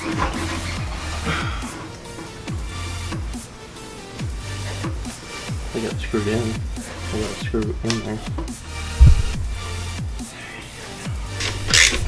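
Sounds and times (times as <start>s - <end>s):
deep kick drum: 7.4s - 10.2s
low bass tone: 8.8s - 9.8s.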